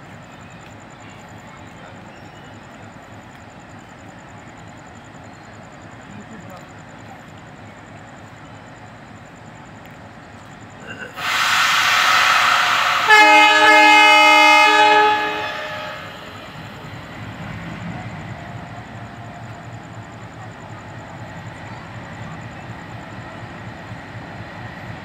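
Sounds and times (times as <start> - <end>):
two-tone air horn: 11.2 - 16.6
loud hiss: 11.2 - 17.0.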